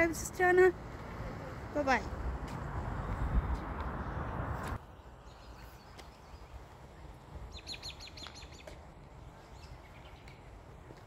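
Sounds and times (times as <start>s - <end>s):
faint outdoor background noise: 0.0s - 11.0s
small bird chirping: 7.5s - 8.7s.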